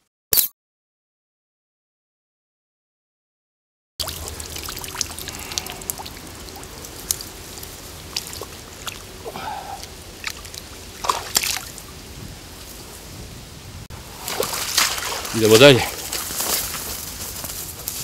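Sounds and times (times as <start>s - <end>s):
water trickling and dripping: 4.0s - 12.8s
hands splashing in water: 10.2s - 11.8s, 14.1s - 16.3s.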